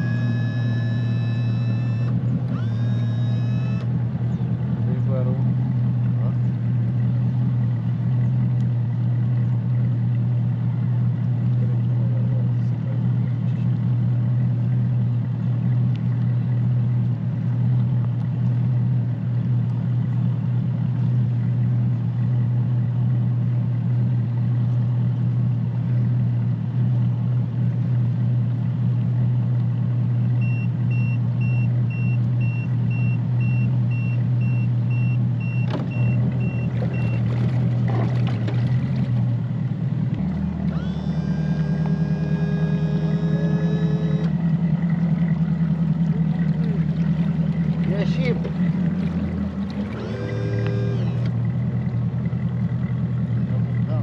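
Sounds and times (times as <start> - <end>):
faint high electronic beep: 0.0 - 2.1, 40.7 - 44.3
outboard motor running: 0.0 - 54.0.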